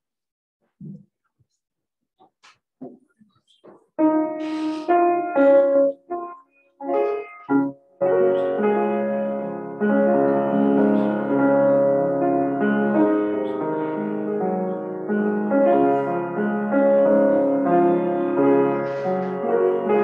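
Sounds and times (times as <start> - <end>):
piano playing slow chords: 4.0 - 20.0.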